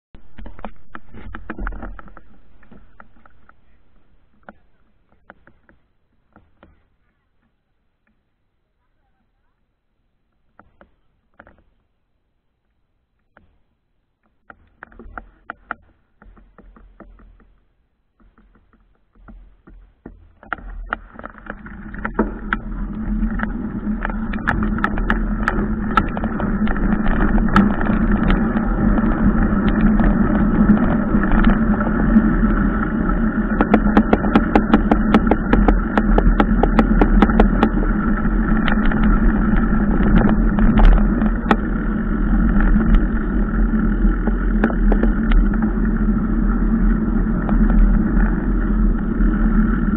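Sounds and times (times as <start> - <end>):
tyres and wind rumble: 0.2 - 5.9, 19.4 - 49.9
bike rattles and clicks: 0.2 - 8.3, 12.6 - 49.9.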